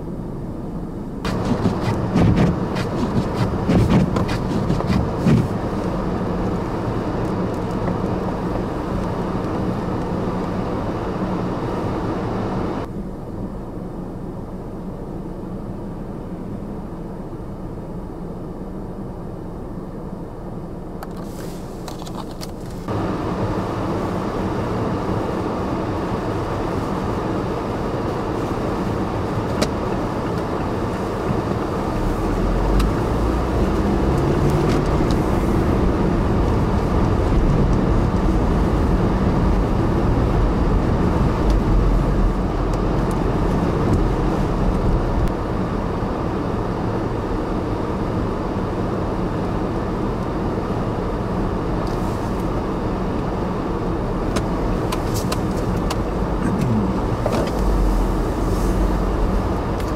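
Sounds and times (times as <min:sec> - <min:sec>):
vehicle road noise on snow: 0:00.0 - 0:59.9
blizzard wind rushing: 0:22.8 - 0:59.9
deep rumble: 0:28.7 - 0:45.7, 0:54.0 - 0:59.9.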